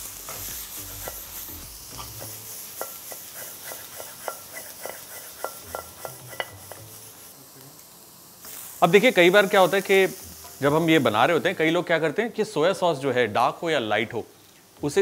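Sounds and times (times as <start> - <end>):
vegetables sizzling in a wok: 0.0 - 15.0
spatula tapping metal wok: 2.0 - 6.9.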